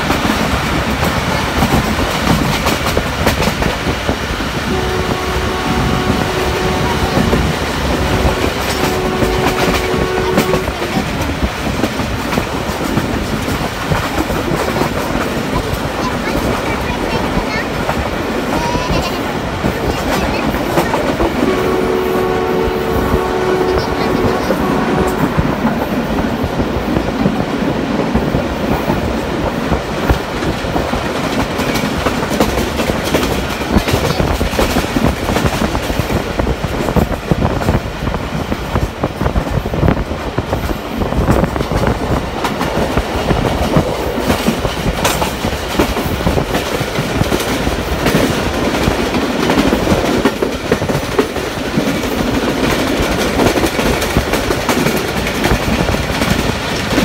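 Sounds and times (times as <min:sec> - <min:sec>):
train rumble and rush: 0:00.0 - 0:57.0
two-tone train horn: 0:04.6 - 0:10.9, 0:21.4 - 0:25.4
wheels clattering over rails: 0:23.2 - 0:57.0.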